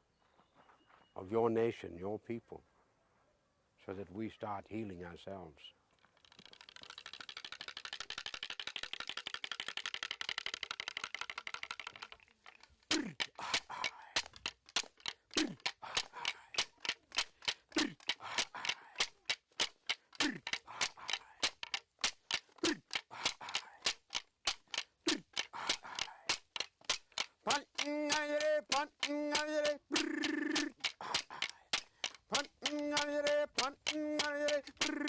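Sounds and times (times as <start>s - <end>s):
clapstick strikes: 7.6s - 35.0s.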